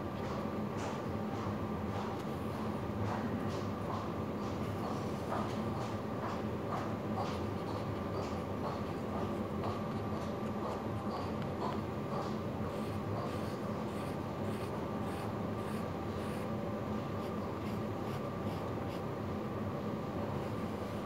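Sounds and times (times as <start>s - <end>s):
steady low hum: 0.0s - 21.0s
felt pen scratching on paper: 12.2s - 16.5s, 17.2s - 19.0s.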